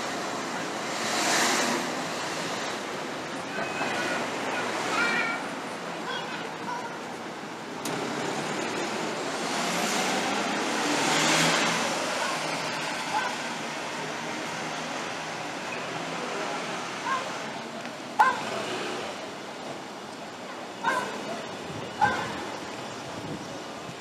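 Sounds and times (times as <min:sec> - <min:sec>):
street hum: 0:00.0 - 0:24.0
car passing: 0:07.8 - 0:19.3
dog barking: 0:13.1 - 0:13.4, 0:18.2 - 0:18.4, 0:20.8 - 0:21.4, 0:22.0 - 0:22.4.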